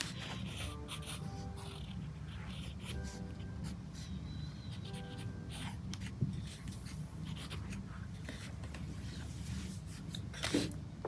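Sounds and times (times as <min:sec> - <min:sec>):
pen scratching on paper: 0:00.0 - 0:04.2, 0:04.8 - 0:08.5
soft background music: 0:00.0 - 0:09.9
steady low hum: 0:00.0 - 0:11.0.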